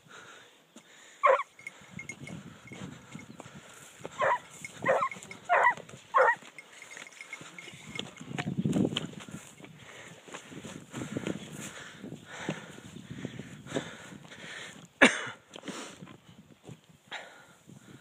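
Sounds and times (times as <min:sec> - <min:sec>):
hound baying: 0:01.2 - 0:02.2, 0:04.1 - 0:06.6.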